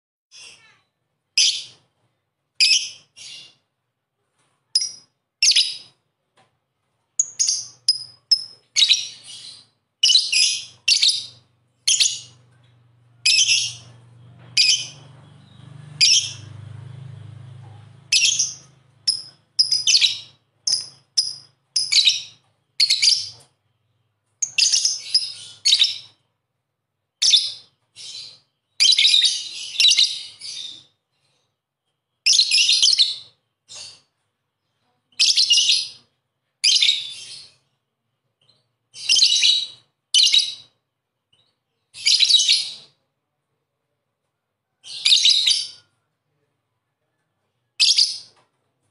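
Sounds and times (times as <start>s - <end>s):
lovebird chattering calls: 7.2s - 12.3s, 18.1s - 23.3s.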